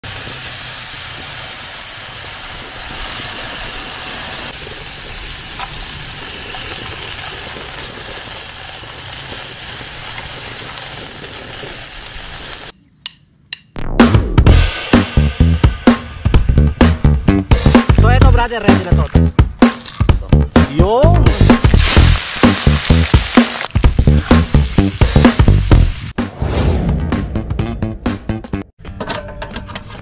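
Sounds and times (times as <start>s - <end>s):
meat sizzling on a grill pan: 0.0s - 12.7s, 21.4s - 26.1s
drum-kit music: 13.6s - 28.7s.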